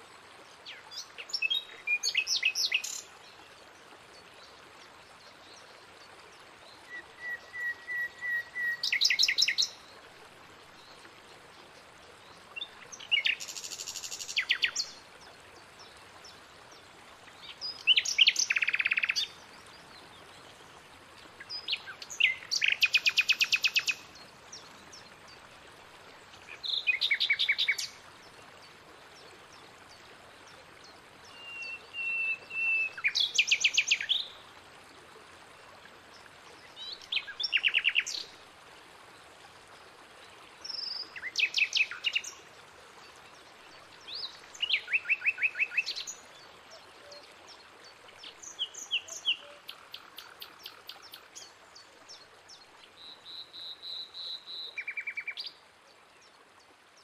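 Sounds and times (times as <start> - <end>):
faint running water: 0.0 - 57.0
songbird singing trills: 6.9 - 9.8, 17.4 - 19.4, 31.3 - 34.4, 48.2 - 52.2, 53.0 - 55.6.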